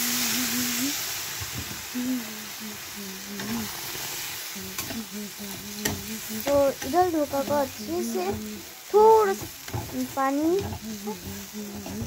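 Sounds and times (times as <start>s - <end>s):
water hissing in hot pan: 0.0s - 12.0s
spatula scraping pan: 3.4s - 12.0s.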